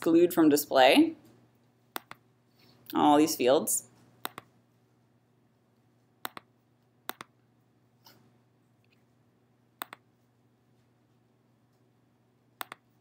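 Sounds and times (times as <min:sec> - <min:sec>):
faint room hum: 0:00.0 - 0:13.0
computer mouse clicks: 0:02.0 - 0:02.2, 0:04.2 - 0:04.5, 0:06.2 - 0:06.5, 0:07.1 - 0:07.3, 0:09.8 - 0:10.0, 0:12.6 - 0:12.8.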